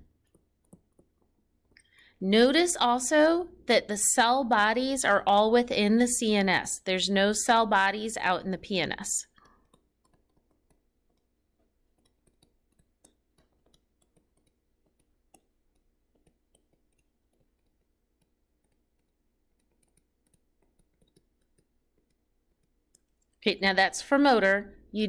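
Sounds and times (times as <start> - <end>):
stylus tapping on tablet screen: 0.0 - 3.2, 7.5 - 23.5.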